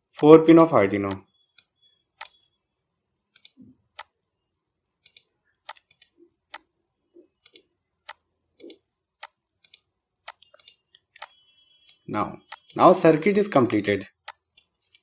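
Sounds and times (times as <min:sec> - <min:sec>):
computer mouse clicks: 0:01.1 - 0:02.4, 0:03.4 - 0:04.1, 0:05.0 - 0:06.7, 0:07.4 - 0:12.8, 0:13.6 - 0:15.0.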